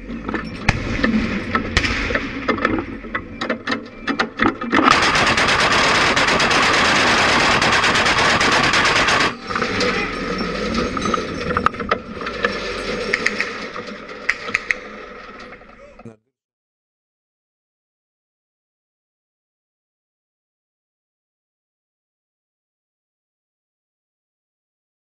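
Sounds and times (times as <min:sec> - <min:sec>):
anti-aircraft gun automatic fire: 0:04.8 - 0:10.0.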